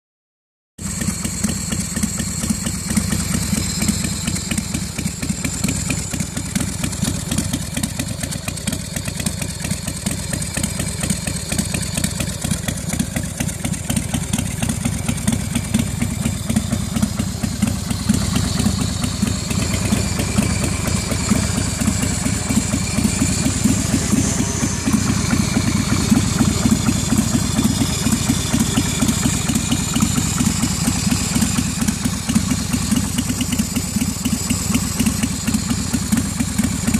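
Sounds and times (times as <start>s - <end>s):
motorcycle engine idling: 0.8s - 36.9s.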